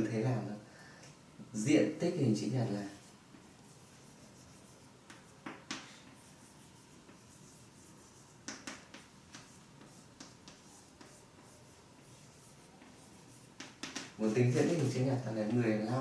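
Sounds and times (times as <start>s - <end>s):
pen scratching and tapping: 5.1s - 6.3s, 8.4s - 14.2s.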